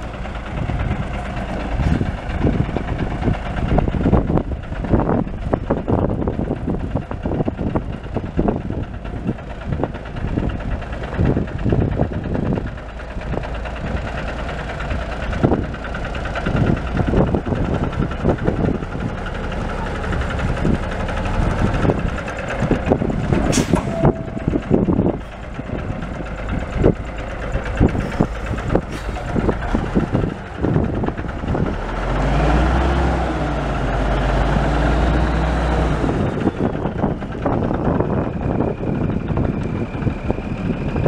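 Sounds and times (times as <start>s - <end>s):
diesel truck engine idling: 0.0s - 41.0s.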